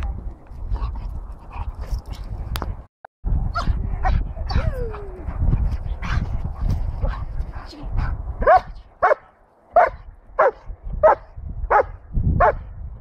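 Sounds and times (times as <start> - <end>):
wind rumble on microphone: 0.0 - 13.0
dog yipping and whining: 4.5 - 5.2.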